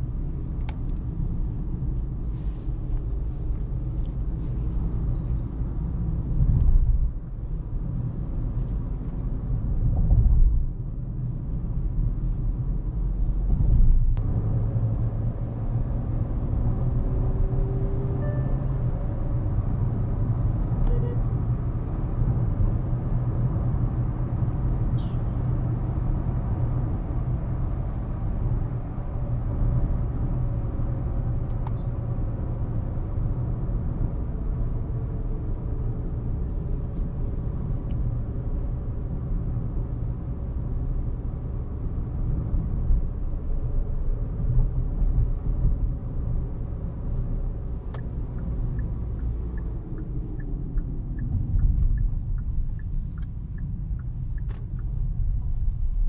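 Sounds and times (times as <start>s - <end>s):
tyre and road noise: 41.9s - 56.0s.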